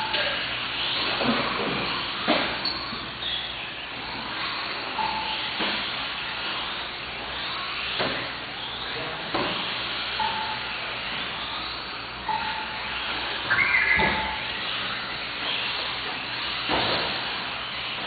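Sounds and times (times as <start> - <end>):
brief beeps: 13.5 - 14.5.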